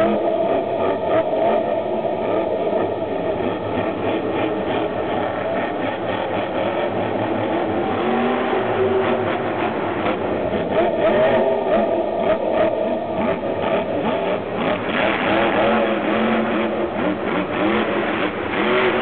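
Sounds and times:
monster truck engine revving: 0.0 - 19.0.

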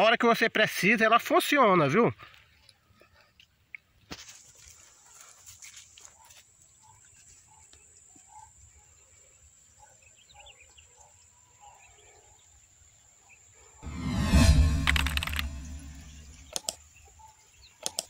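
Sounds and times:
loud sound effect: 13.8 - 16.5.

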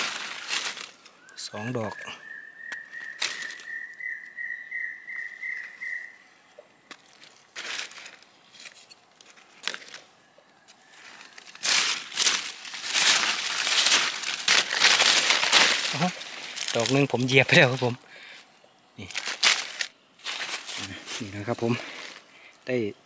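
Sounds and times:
dry leaves crackling underfoot: 0.0 - 2.0, 2.6 - 6.2, 6.8 - 22.3
high whistling tone: 1.9 - 6.2.

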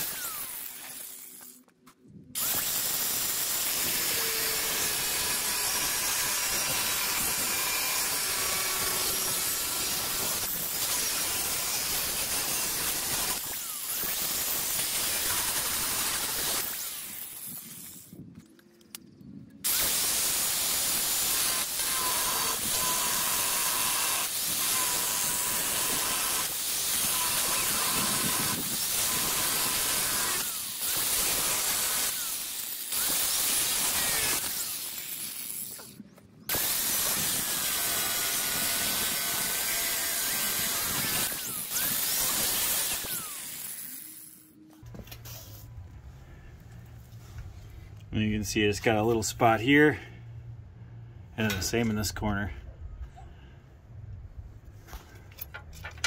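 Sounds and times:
angle grinder cutting steel: 0.0 - 1.6, 2.4 - 18.0, 19.6 - 44.6.

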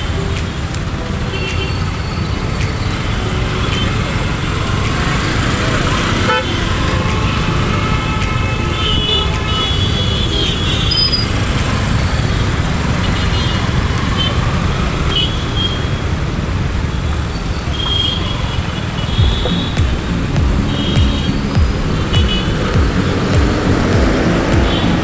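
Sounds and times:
car horn toots: 6.0 - 11.9, 19.0 - 23.2.

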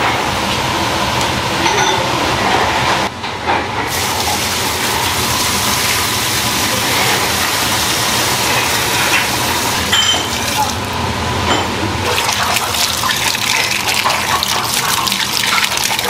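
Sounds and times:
kitchen hum: 0.0 - 16.0
sauce pouring into pot: 12.1 - 16.0.

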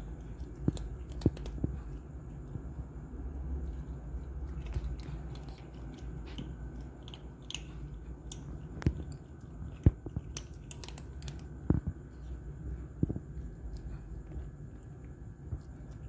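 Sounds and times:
cats crunching dry kibble: 0.0 - 2.7, 3.6 - 12.4.

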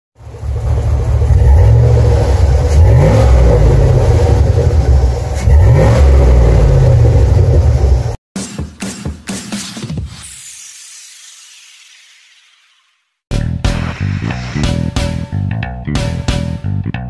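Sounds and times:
truck engine accelerating: 0.2 - 8.2.

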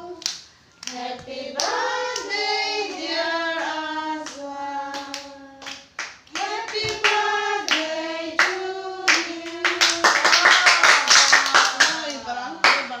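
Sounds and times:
group singing long notes: 0.0 - 12.2
rhythmic hand-clapping: 0.0 - 13.0.

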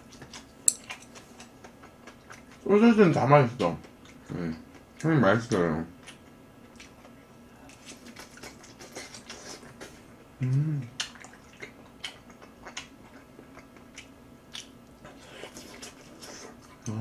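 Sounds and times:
person chewing: 0.0 - 2.7, 6.0 - 17.0
person humming: 10.4 - 11.0.

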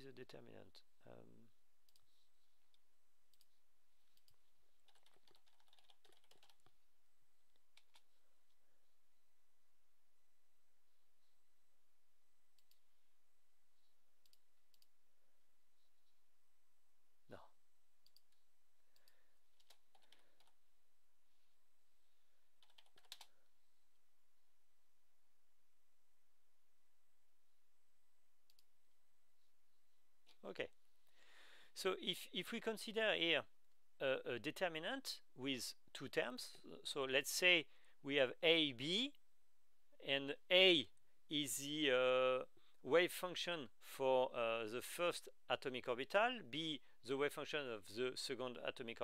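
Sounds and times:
faint keyboard typing: 1.8 - 8.6, 12.5 - 12.9, 18.0 - 20.6, 22.5 - 23.5, 28.4 - 28.8.

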